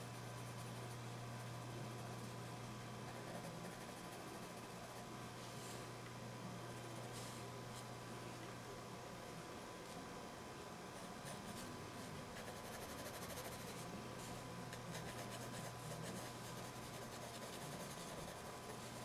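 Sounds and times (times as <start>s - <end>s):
pencil scratching on paper: 12.4s - 13.9s, 14.9s - 19.0s.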